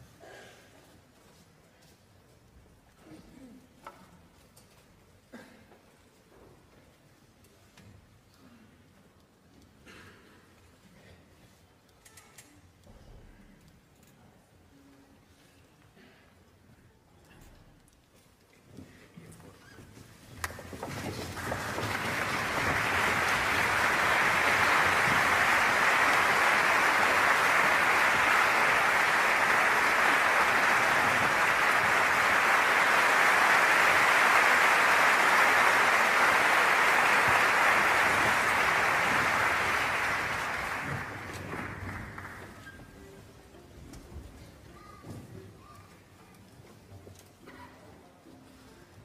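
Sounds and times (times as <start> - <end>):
audience applauding: 20.4 - 42.8.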